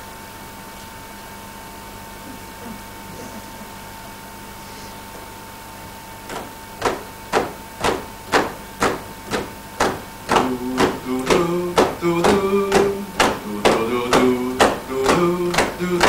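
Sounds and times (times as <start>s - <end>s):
percussive beat: 6.3s - 16.0s.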